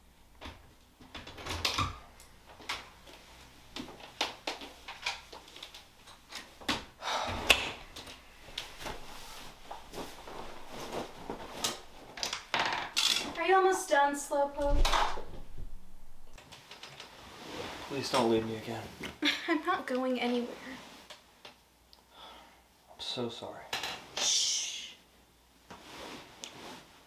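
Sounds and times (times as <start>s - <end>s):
knocks and rustling: 0.4s - 16.9s
doors opening and closing: 13.2s - 16.4s
person speaking: 13.3s - 15.3s.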